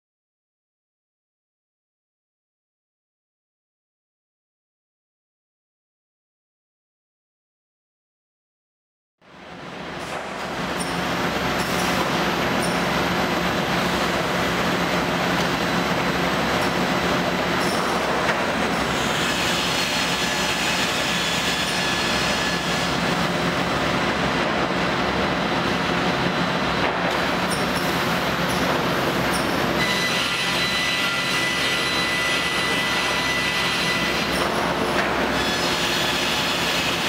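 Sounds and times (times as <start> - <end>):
saw machinery running: 9.8 - 37.0.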